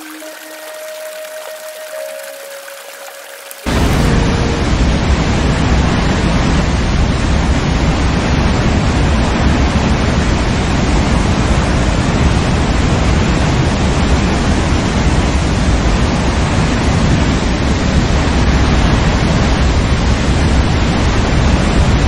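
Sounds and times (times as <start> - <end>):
waterfall rushing: 0.0 - 9.1.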